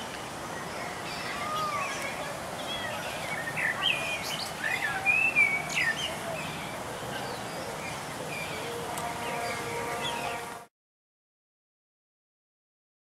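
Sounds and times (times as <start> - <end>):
outdoor background noise: 0.0 - 10.7
birds chirping and whistling: 2.6 - 10.4.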